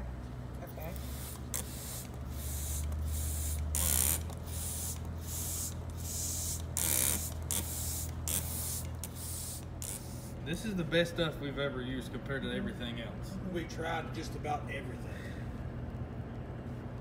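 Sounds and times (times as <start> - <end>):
spray bottle squirts: 1.0 - 10.4.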